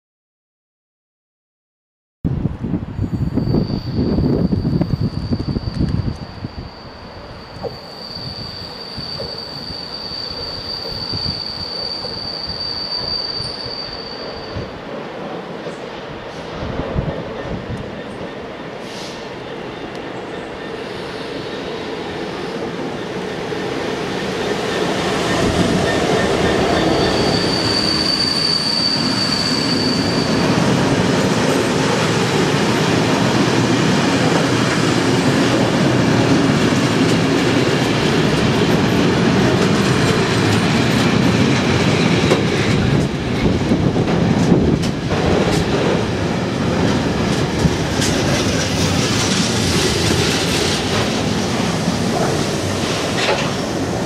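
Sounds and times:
diesel locomotives passing: 0:02.9 - 0:54.0
high wheel squeal: 0:03.0 - 0:14.8, 0:24.1 - 0:32.4
train wagons rolling on rails: 0:03.2 - 0:54.0.

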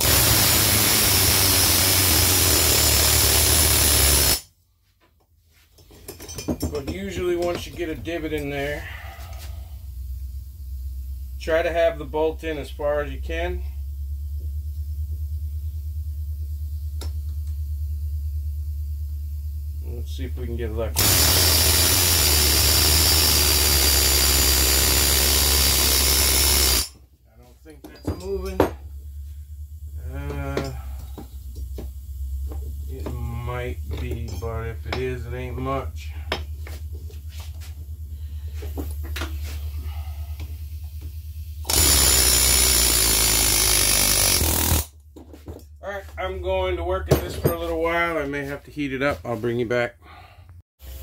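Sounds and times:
pneumatic air hammer buzzing: 0:00.0 - 0:04.5, 0:21.0 - 0:27.0, 0:36.0 - 0:45.0
low steady hum: 0:05.5 - 0:21.0, 0:27.0 - 0:42.9.

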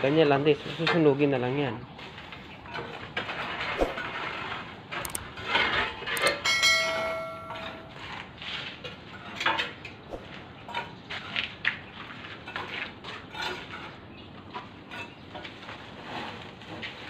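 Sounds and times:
sharp clicks: 0:05.0 - 0:05.3
bell chime: 0:06.3 - 0:08.0.

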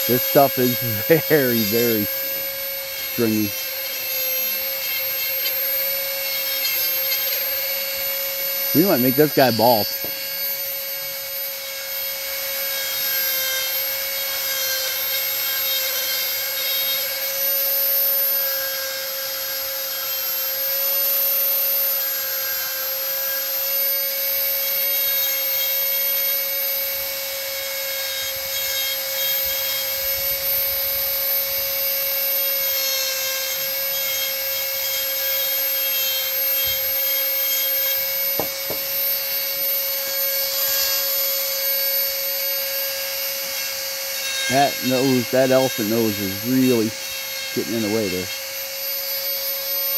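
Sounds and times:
bit grinding into wood: 0:00.0 - 0:08.1, 0:08.7 - 0:10.4, 0:36.0 - 0:39.2, 0:43.6 - 0:48.6
rotary tool whining: 0:00.0 - 0:23.4, 0:24.7 - 0:49.9.

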